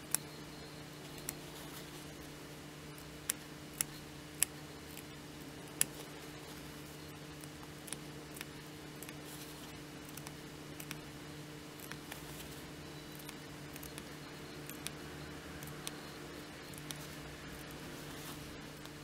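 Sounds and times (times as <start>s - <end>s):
faint steady hum: 0.0s - 19.0s
scissors snipping fabric: 7.4s - 11.1s.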